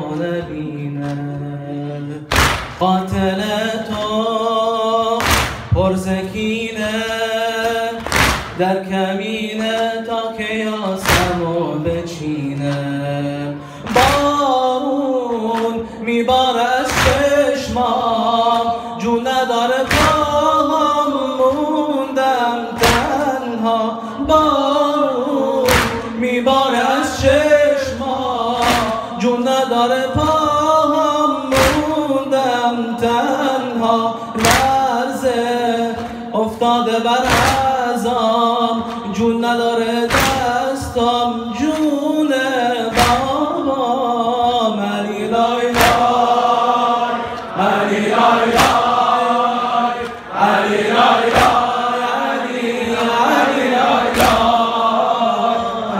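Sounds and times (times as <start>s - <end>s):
loud rhythmic thump: 0.0s - 55.9s
man singing into a microphone: 0.0s - 55.9s
voices chanting: 45.0s - 55.9s.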